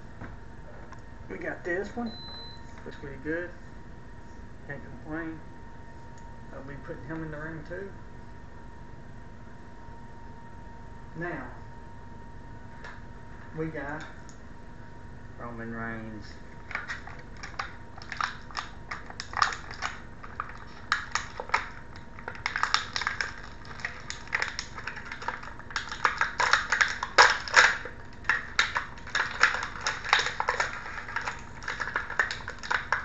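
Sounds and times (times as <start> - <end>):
plastic packaging crackling: 16.6 - 33.0.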